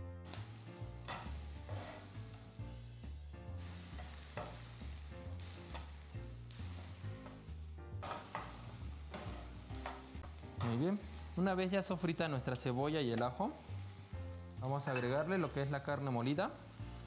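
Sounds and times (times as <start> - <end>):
onion sizzling in oil: 0.0 - 17.0
spatula scraping pan: 1.1 - 2.1.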